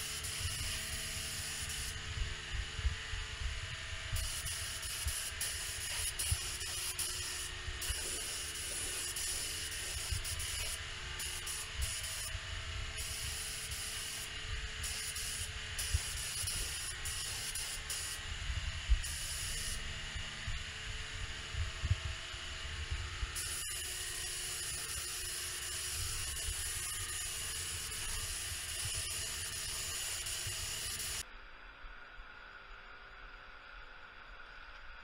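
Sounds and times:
paint spray gun hissing: 0.0s - 2.0s, 4.1s - 18.3s, 18.9s - 19.9s, 23.4s - 31.2s.

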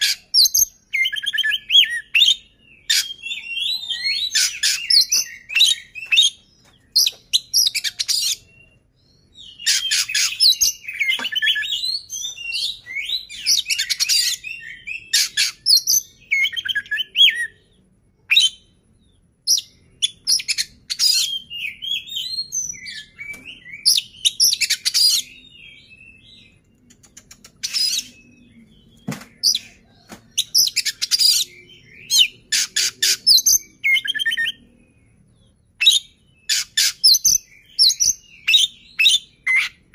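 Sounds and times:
bird singing whistled notes: 0.0s - 39.9s
harsh rasping bird chatter: 2.8s - 8.6s, 9.4s - 14.4s, 26.8s - 28.3s, 32.3s - 33.5s.

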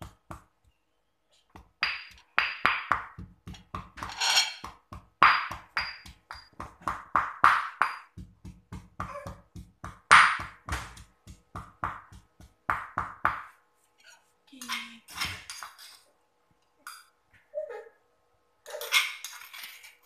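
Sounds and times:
stone pestle pounding in mortar: 0.0s - 0.5s, 1.5s - 13.6s.

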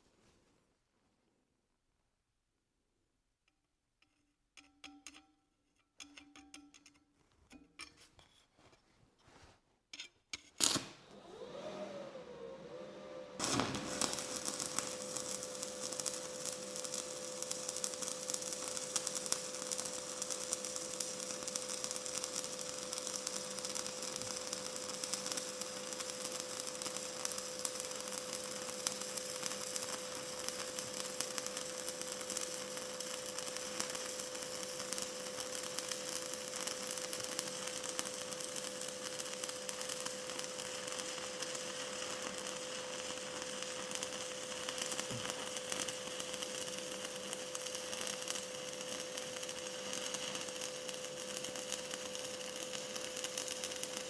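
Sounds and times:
welding arc crackling sizzle: 10.4s - 12.8s, 13.4s - 54.0s.

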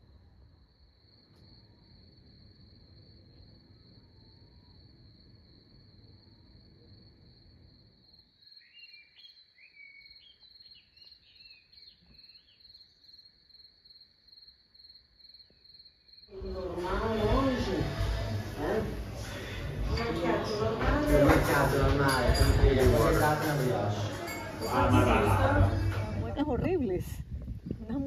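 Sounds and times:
crickets chirping: 0.0s - 20.8s
bird twittering: 8.5s - 13.0s
loud voices talking: 16.3s - 27.1s.

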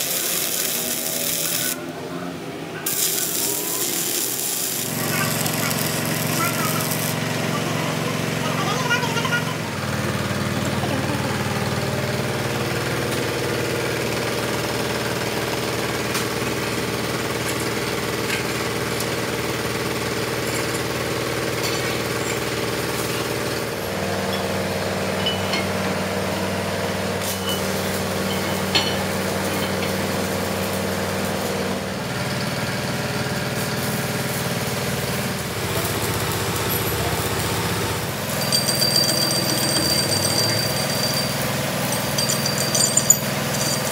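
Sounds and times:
thin high metal ringing: 38.3s - 43.9s.

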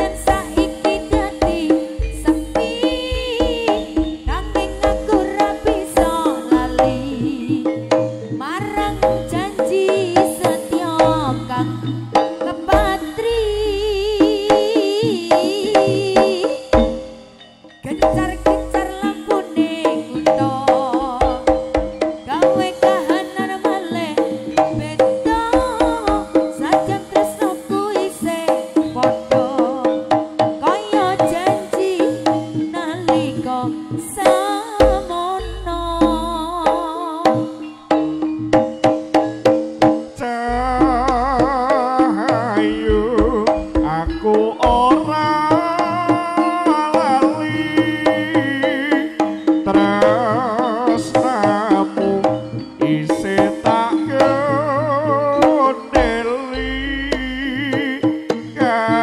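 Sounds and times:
steady low held tone: 0.0s - 14.7s, 34.4s - 38.8s
hand drums fast beat: 0.0s - 59.0s
wavering melody line: 0.0s - 59.0s.

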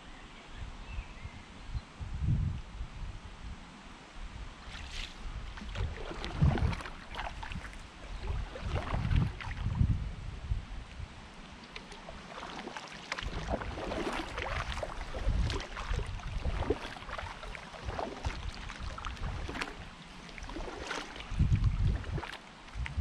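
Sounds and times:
paddle splashing in water: 4.6s - 9.8s, 11.4s - 22.9s.

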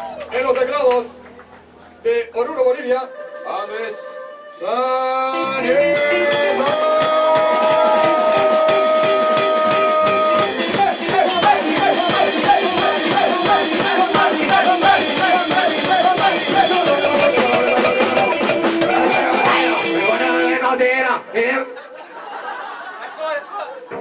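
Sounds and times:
rock band playing live: 5.4s - 20.7s.

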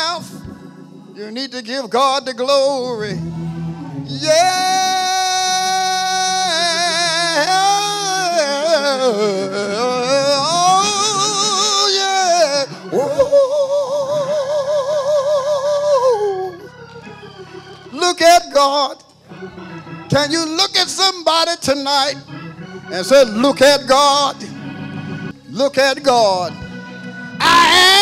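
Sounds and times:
faint organ: 0.0s - 28.0s
person singing with vibrato: 4.1s - 16.8s, 27.4s - 28.0s.

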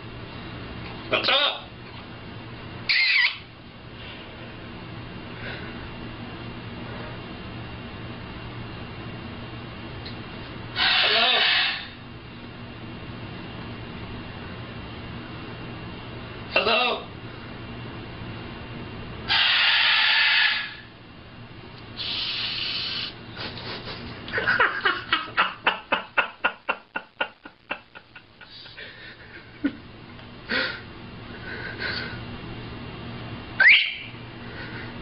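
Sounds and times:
macaw hissing rasps: 2.9s - 3.4s, 10.8s - 12.0s, 19.3s - 20.8s, 22.0s - 24.0s
macaw squawks: 2.9s - 3.5s, 10.8s - 12.0s, 19.3s - 20.9s, 33.6s - 34.2s
macaw laugh-like pulses: 10.8s - 12.0s, 19.3s - 20.8s, 22.0s - 29.8s, 30.5s - 32.2s
rising whistle: 33.6s - 34.2s.

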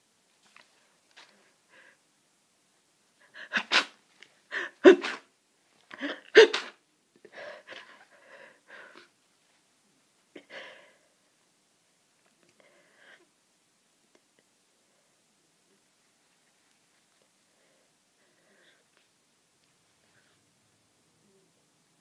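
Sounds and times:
person sneezing: 3.4s - 5.3s, 6.0s - 6.8s.

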